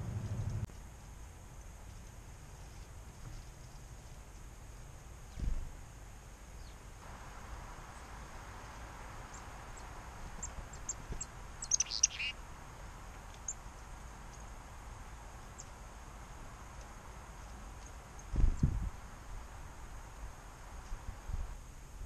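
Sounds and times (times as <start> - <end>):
chickadee chirping: 9.2 - 12.4.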